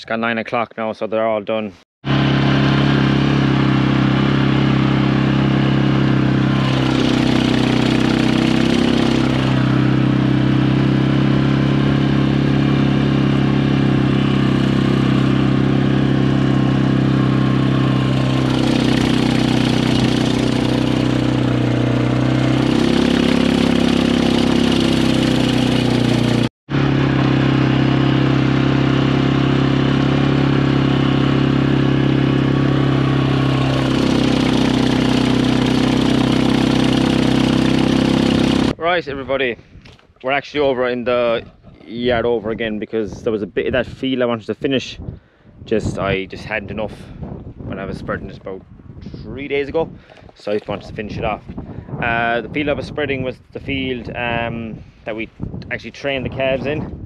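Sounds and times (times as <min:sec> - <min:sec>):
quad bike engine running: 0:02.0 - 0:38.8.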